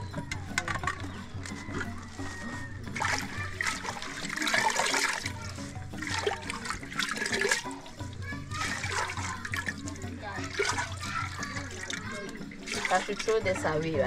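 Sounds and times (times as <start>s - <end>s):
background music: 0.0s - 14.0s
water splashing in metal pot: 0.0s - 14.0s.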